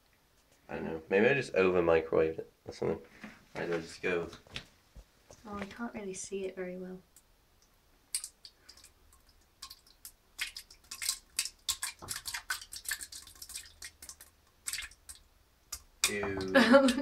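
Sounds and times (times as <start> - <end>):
pudding plopping into toilet water: 8.1 - 17.0.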